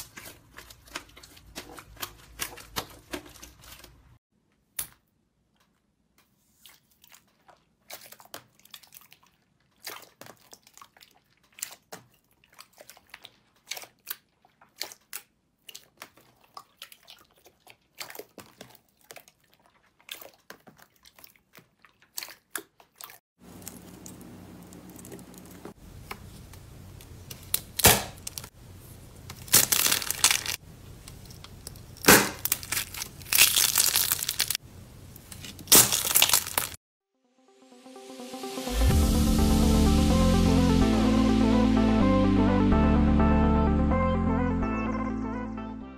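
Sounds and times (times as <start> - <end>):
crackling and crunching: 29.2 - 34.6, 35.2 - 36.8.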